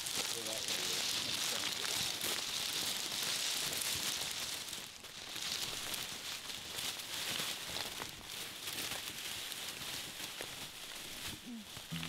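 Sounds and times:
carcass dragged over dry leaves: 0.0 - 12.0
footsteps crunching through leaves: 0.0 - 12.0.

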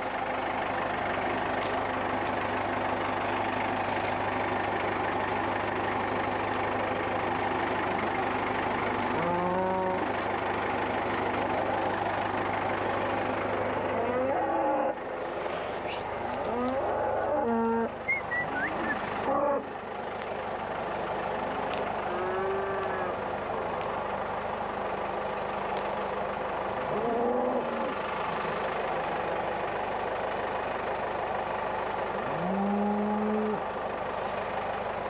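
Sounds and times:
tractor engine running: 0.0 - 35.0
cow mooing: 9.1 - 10.1, 13.9 - 15.0, 16.4 - 18.0, 22.0 - 23.2, 26.9 - 27.9, 32.2 - 33.6.

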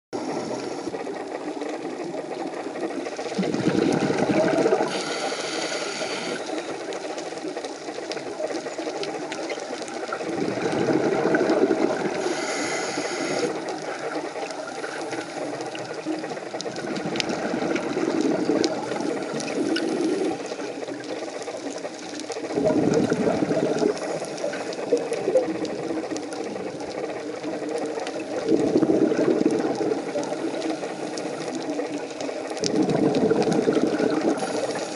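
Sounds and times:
regulator inhale hiss: 0.2 - 1.1, 4.7 - 6.6, 12.1 - 13.7, 34.3 - 34.9
exhaled bubbles rumbling: 0.2 - 34.9
faint clicks: 0.2 - 34.9.

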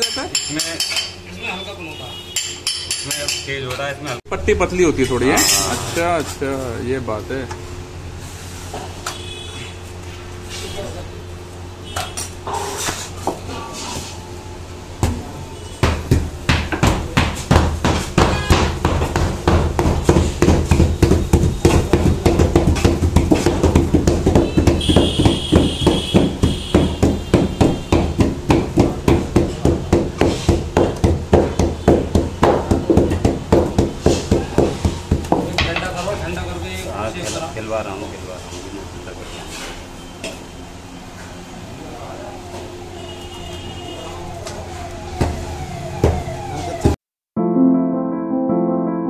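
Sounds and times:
mallet pounding candy slab: 15.8 - 36.0.

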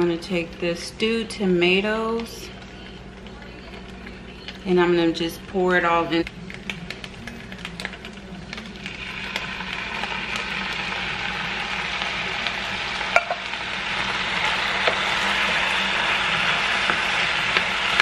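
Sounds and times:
food sizzling in a pan: 8.8 - 18.0.

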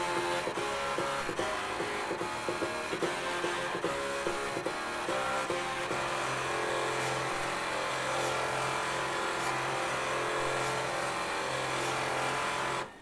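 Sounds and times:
floppy drive music buzzing: 0.0 - 13.0.

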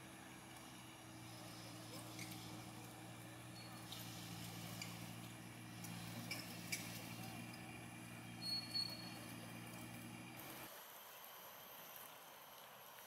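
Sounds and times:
steady low hum: 0.0 - 11.9.

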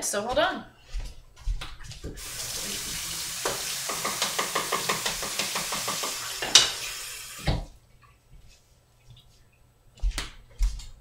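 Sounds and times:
tap water running: 2.1 - 7.8.

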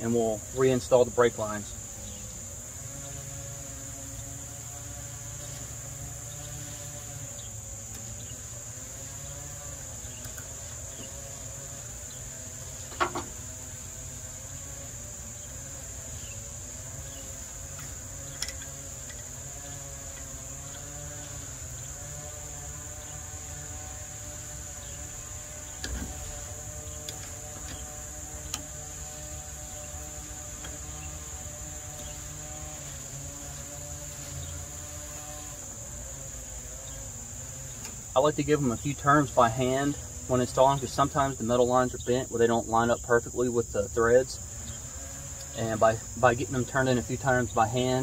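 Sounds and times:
high-pitched insect drone: 0.0 - 48.0.

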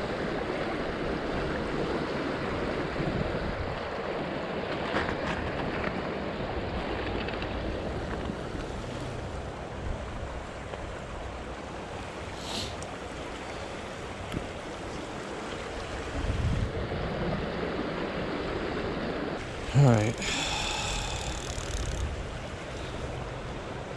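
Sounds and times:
wind on microphone: 16.0 - 17.5.

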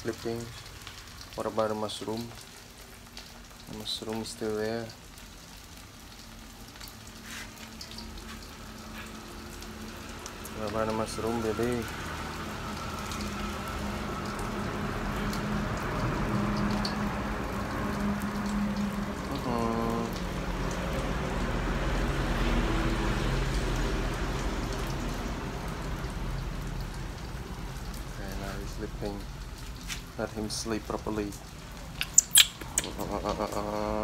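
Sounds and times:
mushrooms sizzling in hot oil: 0.0 - 34.0
small oil pops: 32.0 - 33.0.

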